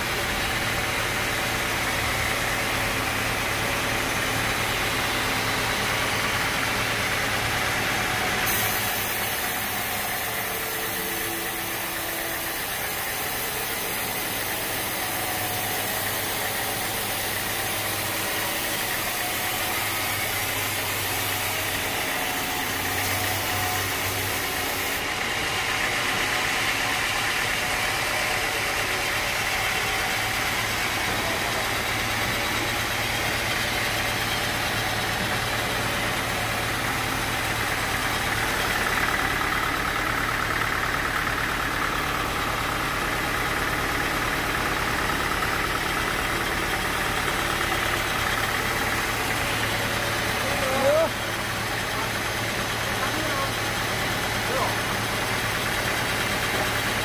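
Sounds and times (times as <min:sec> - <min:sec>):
sawmill machinery drone: 0:00.0 - 0:57.0
high hissing machine noise: 0:04.6 - 0:25.6.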